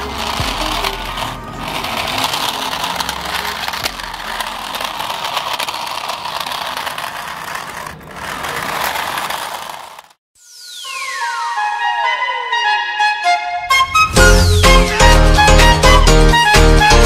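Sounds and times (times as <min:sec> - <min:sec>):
toy car electric motor buzzing: 0:00.0 - 0:10.2.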